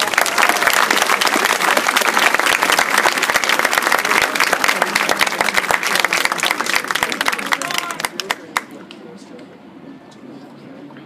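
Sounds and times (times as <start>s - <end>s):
crowd applauding: 0.0s - 8.7s.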